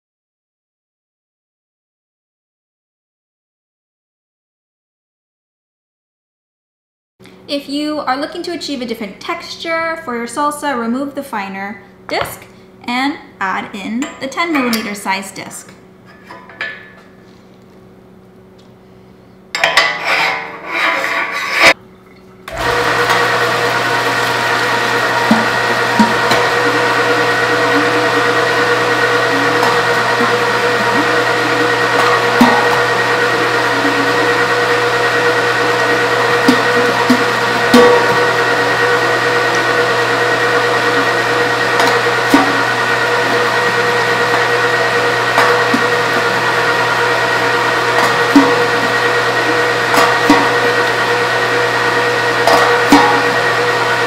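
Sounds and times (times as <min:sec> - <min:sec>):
small knocks in grinder: 0:22.5 - 0:53.9
electric meat grinder humming: 0:22.5 - 0:54.0.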